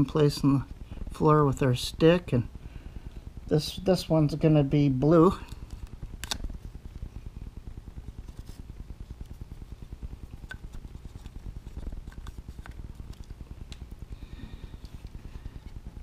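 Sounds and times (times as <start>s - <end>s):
machine humming: 0.0s - 16.0s.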